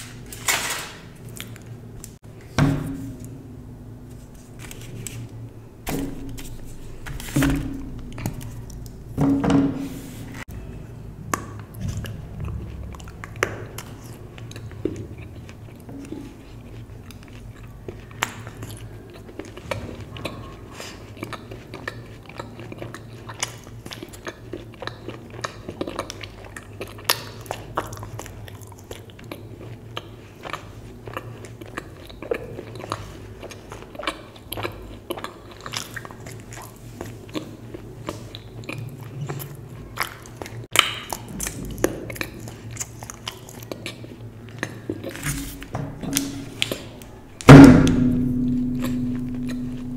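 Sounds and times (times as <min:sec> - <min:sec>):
chocolate chewing close up: 0:11.3 - 0:45.3.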